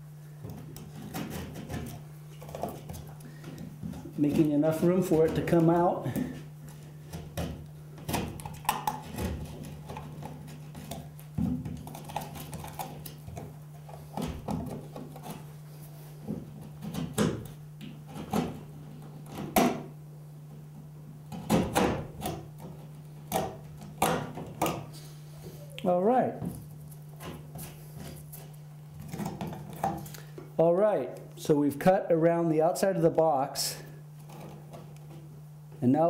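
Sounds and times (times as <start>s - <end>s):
steady low hum: 0.0s - 36.0s
knife scraping drywall: 0.6s - 3.0s, 8.1s - 13.1s.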